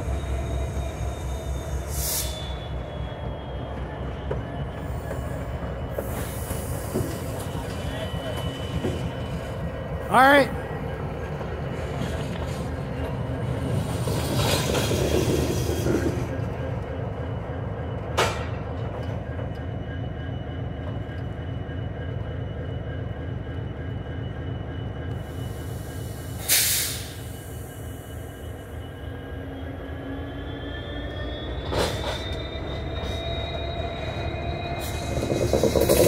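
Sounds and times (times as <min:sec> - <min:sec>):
diesel locomotive engine rumble: 0:00.0 - 0:36.0
wheels on rails with squeal: 0:00.0 - 0:36.0
air hiss: 0:01.9 - 0:02.5, 0:25.4 - 0:27.9.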